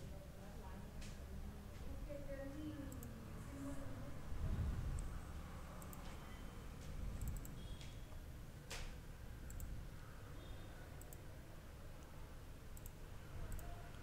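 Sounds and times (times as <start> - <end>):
computer mouse clicks: 2.8 - 3.2, 5.8 - 9.8, 11.0 - 11.3, 12.0 - 14.0.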